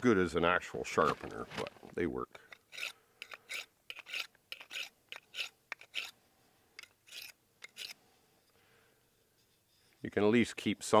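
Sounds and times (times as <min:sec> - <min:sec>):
knife scraping on stone: 0:02.5 - 0:06.2, 0:06.8 - 0:08.0.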